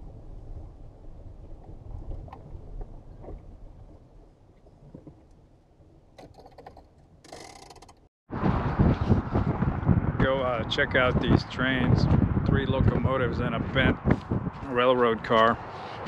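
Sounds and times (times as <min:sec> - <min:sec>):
small clicks and knocks: 0:06.2 - 0:08.1.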